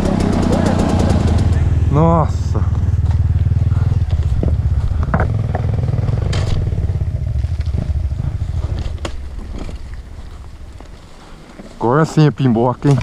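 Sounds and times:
dirt bike engine running: 0.0s - 13.0s
bike knocks and rattles: 2.8s - 11.8s.

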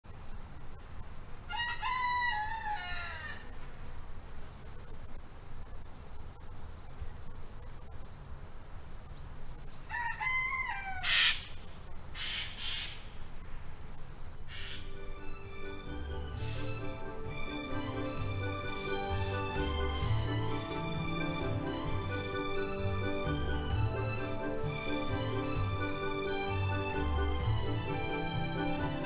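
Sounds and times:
rooster crowing: 1.5s - 3.5s, 9.9s - 11.4s.

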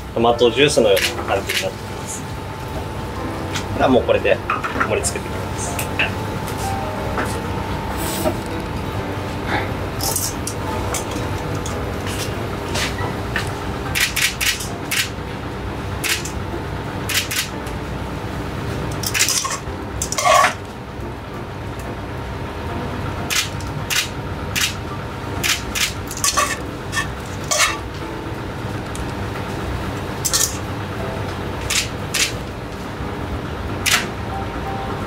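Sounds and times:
low hum: 1.2s - 35.0s
saucepan and utensil clinking: 26.1s - 27.8s.

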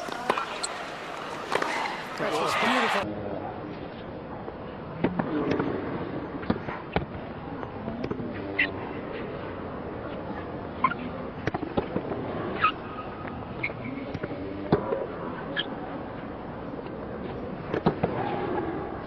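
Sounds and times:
tennis balls struck by rackets: 0.0s - 3.0s, 11.4s - 12.3s, 17.6s - 18.3s.

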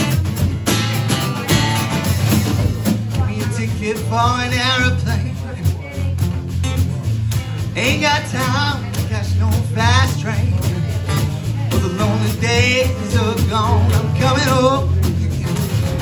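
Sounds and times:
drums and cymbal: 0.0s - 16.0s
strummed acoustic guitar: 0.0s - 16.0s
man singing with vibrato: 3.0s - 6.2s, 6.8s - 16.0s.

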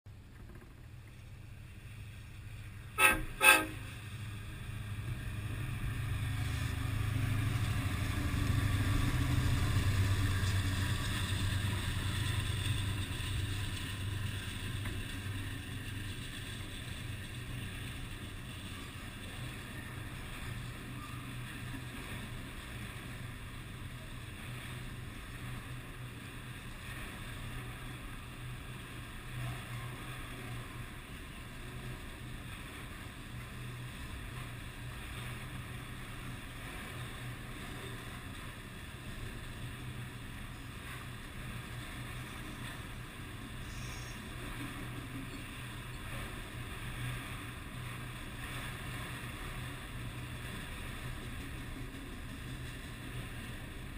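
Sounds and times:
diesel locomotive rumble: 0.1s - 53.9s
freight cars rolling by: 0.1s - 53.9s
train horn blasts: 2.9s - 4.1s.

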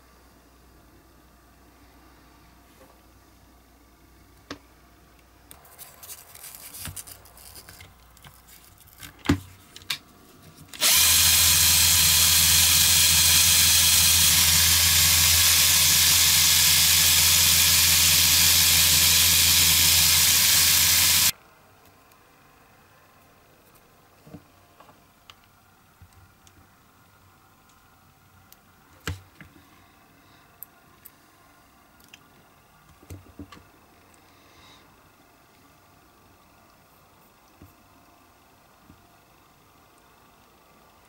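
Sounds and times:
cordless drill running: 10.8s - 21.3s.

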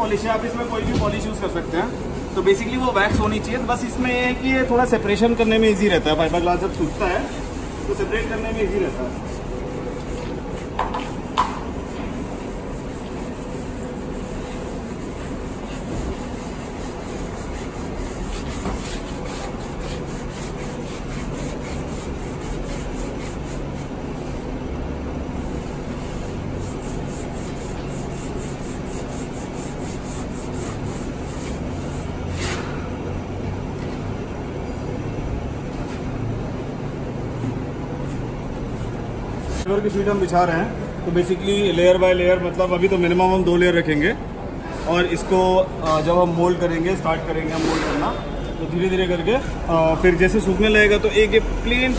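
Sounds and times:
pad scrubbing wax on bench: 0.0s - 24.4s, 25.4s - 32.6s.

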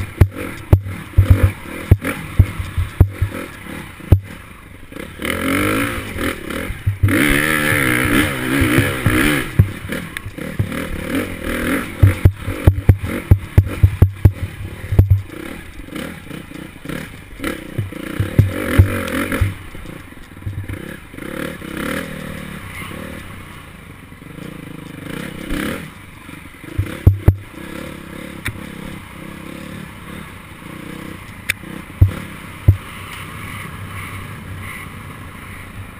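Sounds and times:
dirt bike engine running: 0.0s - 35.6s
bike scraping and rattling: 0.0s - 35.7s
sharp knocks: 0.2s - 3.4s, 10.6s - 10.9s, 12.0s - 14.4s, 15.0s - 15.3s, 17.7s - 19.6s, 26.8s - 27.5s.

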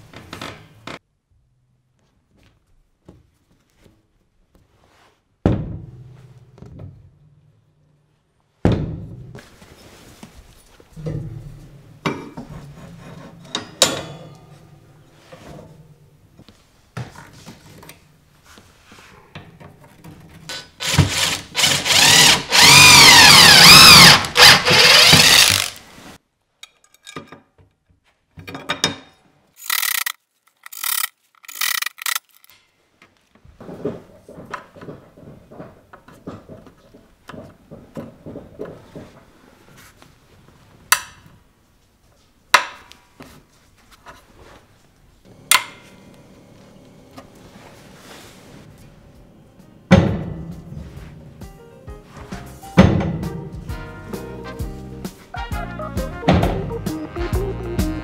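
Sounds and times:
cordless drill whirring into wood: 20.8s - 25.8s.

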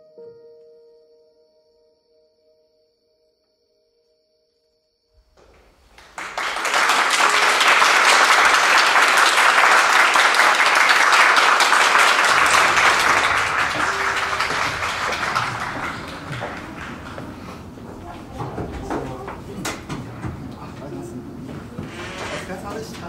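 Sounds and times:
audience applauding: 5.3s - 23.0s.

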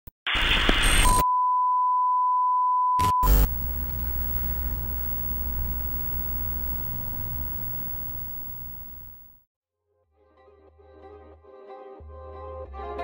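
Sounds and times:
static crackle: 0.2s - 1.2s, 3.0s - 9.4s.

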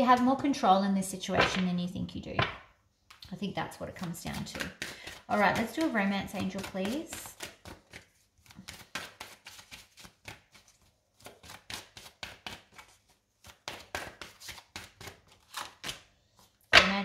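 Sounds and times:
cards being shuffled: 4.0s - 16.5s.

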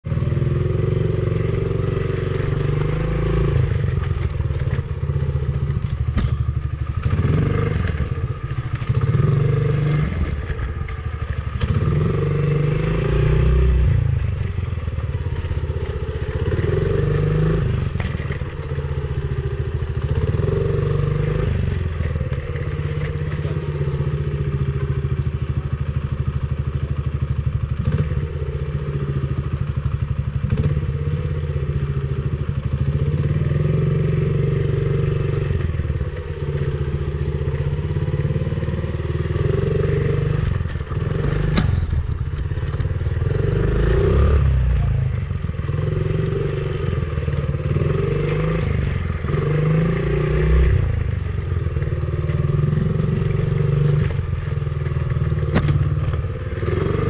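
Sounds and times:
dirt bike engine revving: 7.0s - 8.1s, 11.5s - 14.1s, 42.7s - 57.0s.

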